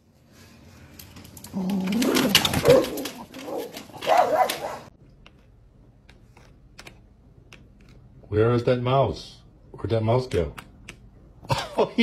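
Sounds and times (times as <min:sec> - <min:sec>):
dog barking and whining: 0:01.5 - 0:04.9.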